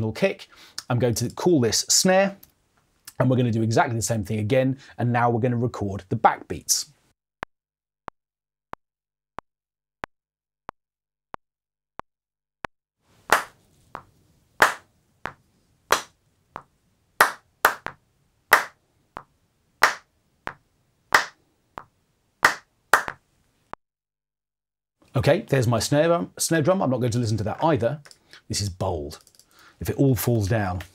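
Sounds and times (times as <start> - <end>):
hand claps: 13.3 - 18.8, 19.8 - 20.0, 21.2 - 21.4, 22.4 - 23.2.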